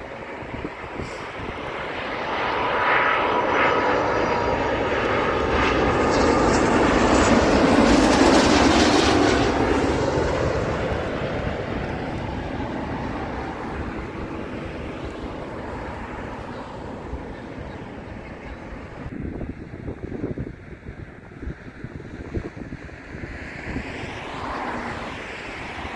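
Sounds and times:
jet airliner roar: 0.0 - 25.9
thin jet engine whine: 0.0 - 25.9.

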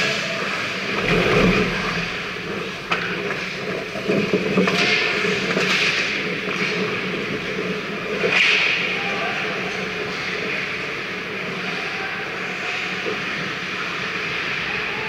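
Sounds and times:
steady low hum: 0.9 - 4.5
hockey sticks and puck clacking: 4.0 - 8.9.

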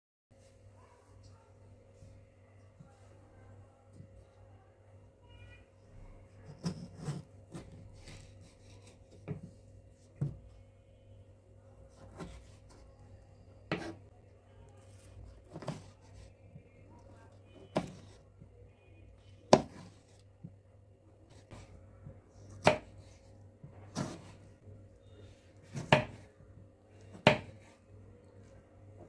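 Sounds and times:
knife slicing tomato: 6.4 - 9.5, 11.9 - 13.0, 13.7 - 14.1, 14.8 - 16.4, 17.5 - 18.2, 19.5 - 20.2, 22.4 - 23.2, 23.8 - 24.5, 25.6 - 26.3.

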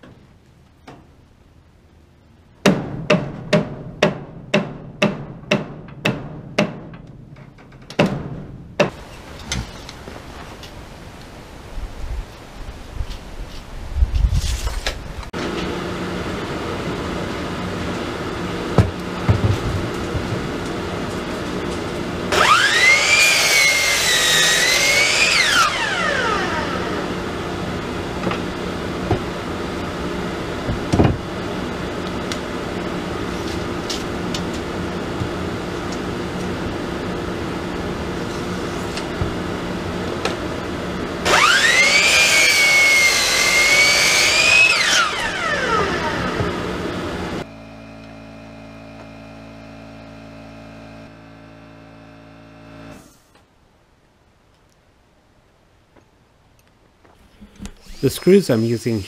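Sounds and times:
miter saw cutting wood: 15.4 - 53.3.

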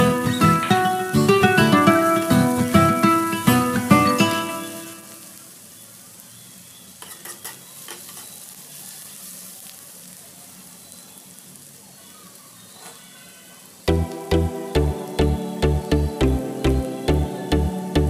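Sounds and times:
onions sizzling in oil: 0.0 - 18.0
spoon scraping pan: 7.0 - 8.4.

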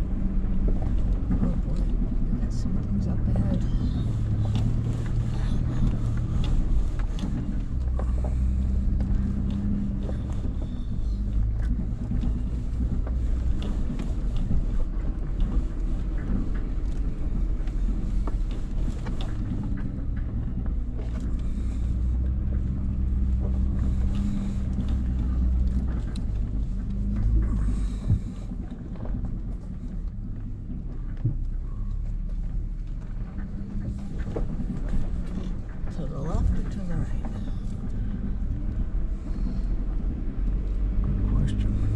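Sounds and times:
engine low steady rumble: 0.0 - 41.9
truck knocks and rattles: 0.0 - 41.9.

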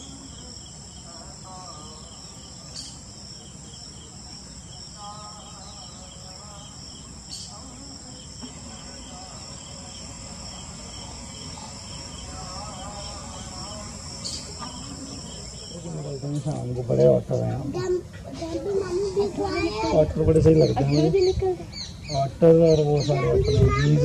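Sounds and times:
insect chorus trilling: 0.0 - 17.9, 18.8 - 24.0.

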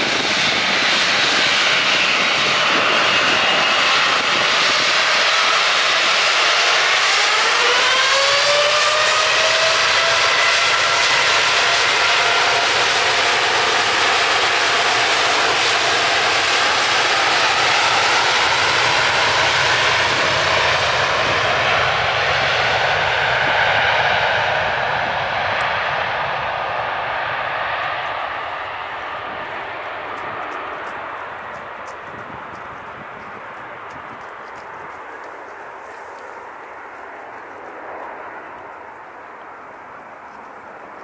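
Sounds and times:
jet engines spooling up: 0.0 - 41.0.

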